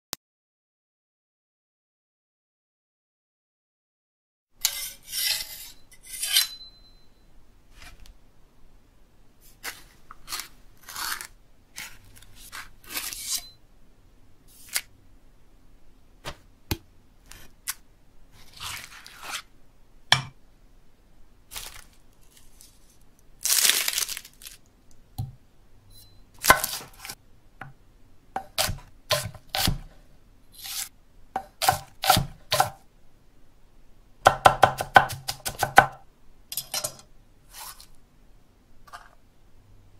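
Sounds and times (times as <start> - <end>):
knife scraping sharpening stone: 4.6 - 7.0, 10.3 - 13.6, 30.6 - 32.7, 36.5 - 37.9
cleaver chopping on wooden block: 31.4 - 32.8, 34.3 - 36.0.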